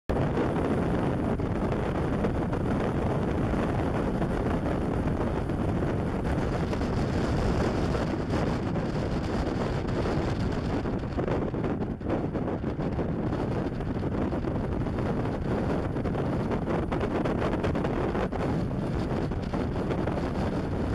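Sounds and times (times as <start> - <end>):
wind noise on microphone: 0.1 - 20.9.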